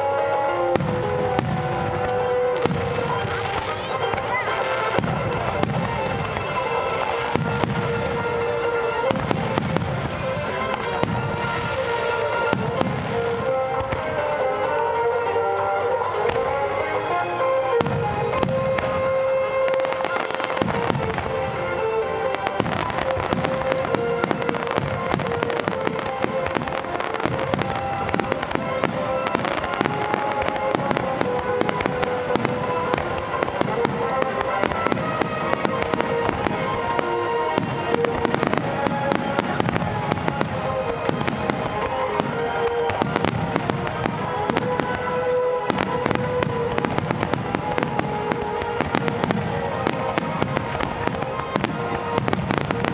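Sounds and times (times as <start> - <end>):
firework shells bursting and crackling: 0.0 - 52.9
music playing: 0.0 - 52.9.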